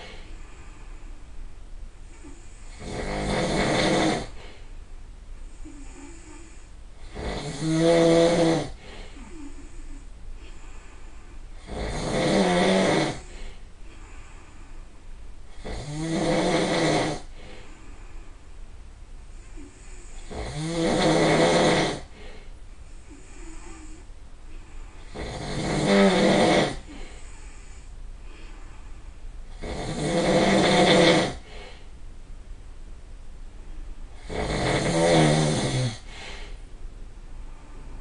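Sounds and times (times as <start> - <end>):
faint breathing: 0.0 - 3.2, 4.2 - 7.2, 8.3 - 11.7, 12.8 - 15.6, 17.2 - 20.5, 22.0 - 25.8, 26.7 - 29.6, 31.4 - 32.0, 35.9 - 38.0
person snoring loudly: 2.2 - 4.4, 5.6 - 10.0, 11.6 - 13.4, 15.5 - 17.3, 19.6 - 22.2, 25.1 - 27.3, 29.5 - 31.6, 34.2 - 36.5.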